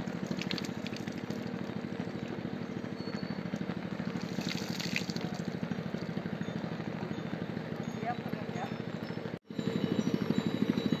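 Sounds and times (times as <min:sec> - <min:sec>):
water splashing onto statue: 0:00.0 - 0:01.5, 0:04.2 - 0:05.5
low mechanical hum: 0:00.0 - 0:11.0.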